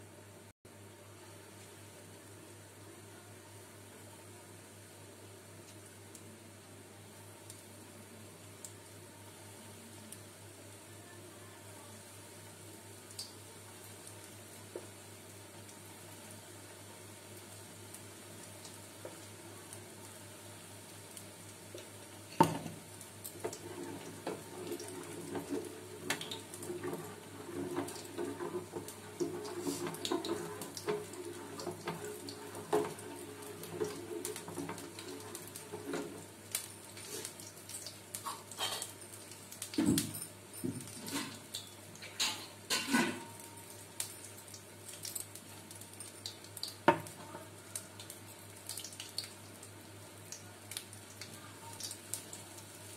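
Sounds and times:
kitchen utensils clinking: 40.0 - 43.2.

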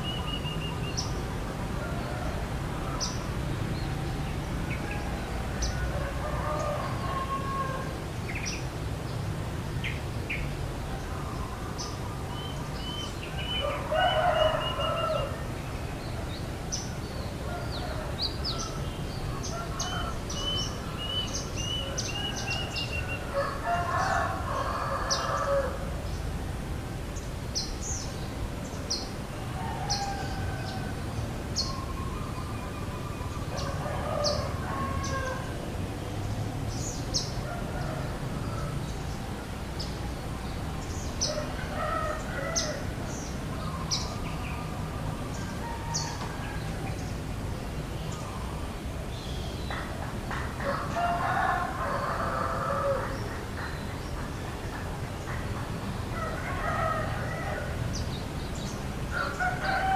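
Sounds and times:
roosters crowing: 0.0 - 3.9, 4.7 - 8.5, 12.8 - 15.6, 16.8 - 26.2, 28.9 - 36.1, 36.8 - 39.2, 40.8 - 47.2, 50.5 - 54.1, 55.9 - 59.9.

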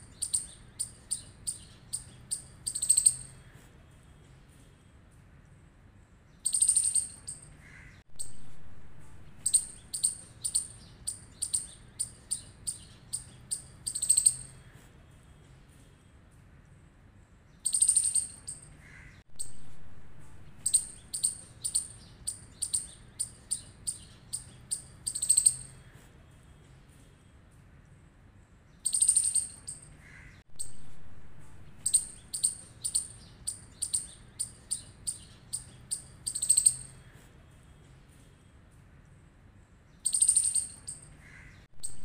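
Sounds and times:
squirrel chirping: 0.0 - 3.5, 6.4 - 8.5, 9.2 - 14.7, 17.6 - 19.7, 20.4 - 25.9, 28.8 - 30.9, 31.5 - 37.1, 40.0 - 42.0.

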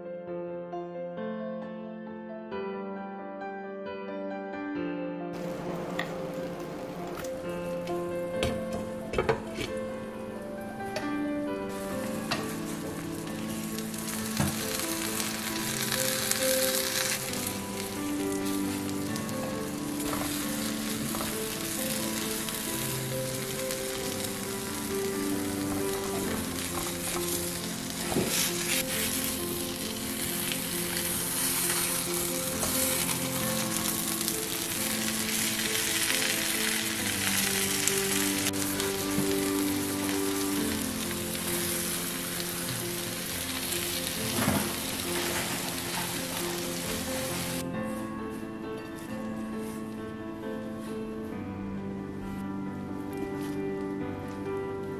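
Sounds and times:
background music with held notes: 0.0 - 54.9
food sizzling in a frying pan: 11.7 - 47.6.

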